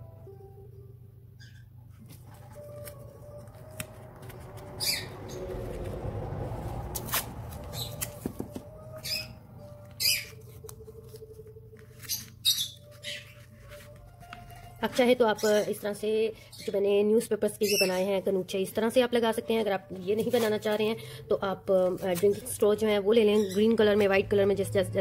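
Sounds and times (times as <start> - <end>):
soft background music: 0.0 - 25.0
paper and tape rustling: 1.9 - 8.8, 9.6 - 15.8, 19.9 - 20.9, 21.7 - 24.2.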